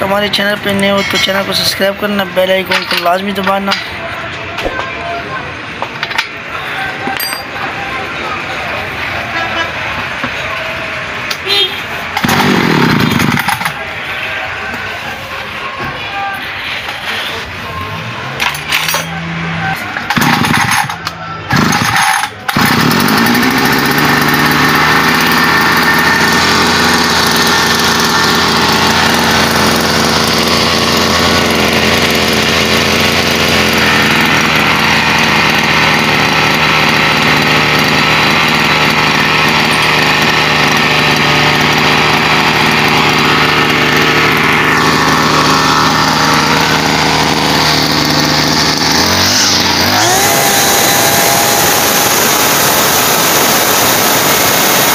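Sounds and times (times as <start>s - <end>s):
brush cutter engine starting: 0.0s - 3.9s, 12.2s - 13.9s, 18.4s - 54.9s.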